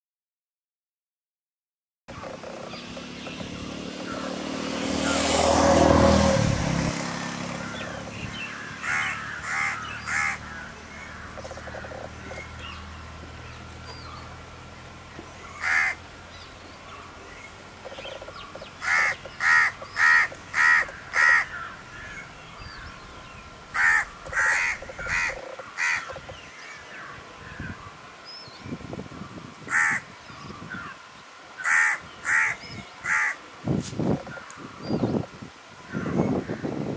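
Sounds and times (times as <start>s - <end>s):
broad rush of noise: 2.1s - 36.9s
crows cawing: 7.5s - 12.4s, 15.5s - 16.0s, 18.4s - 22.3s, 23.7s - 27.9s, 29.7s - 31.0s, 31.6s - 33.4s, 35.9s - 36.7s.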